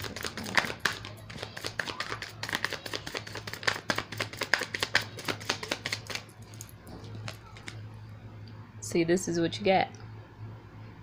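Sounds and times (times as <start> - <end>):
cards being shuffled: 0.0 - 7.8.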